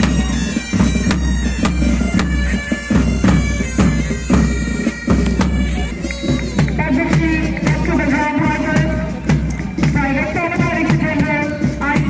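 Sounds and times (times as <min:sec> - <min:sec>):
bagpipes playing a march: 0:00.0 - 0:12.0
bass and side drums beating: 0:00.0 - 0:12.0.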